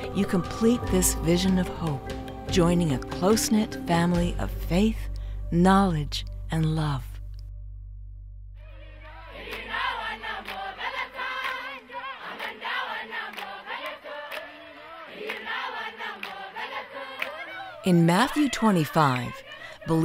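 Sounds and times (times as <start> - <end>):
children singing in chorus: 9.3 - 17.8
children clapping: 9.5 - 17.7.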